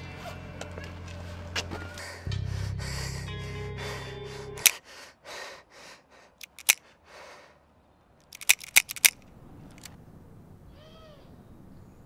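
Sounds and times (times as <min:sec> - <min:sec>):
heavy breathing: 0:01.2 - 0:07.7
revolver dry-fire clicks: 0:06.4 - 0:06.8, 0:08.2 - 0:10.0.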